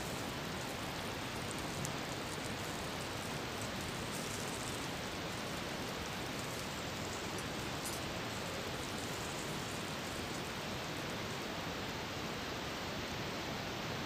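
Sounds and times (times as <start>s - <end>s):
potatoes sizzling in hot oil: 0.0s - 12.3s.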